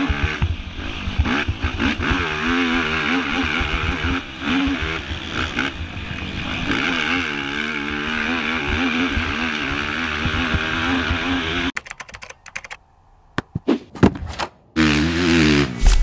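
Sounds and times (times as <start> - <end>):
atv engine revving: 0.0 - 11.8, 14.8 - 16.0
laptop keyboard typing: 11.7 - 12.8.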